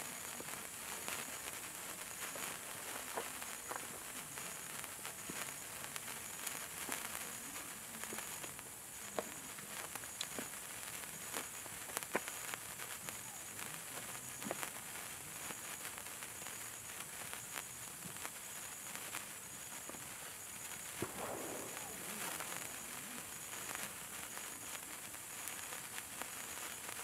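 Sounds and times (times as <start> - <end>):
sparkler fizzing and crackling: 0.0 - 27.0.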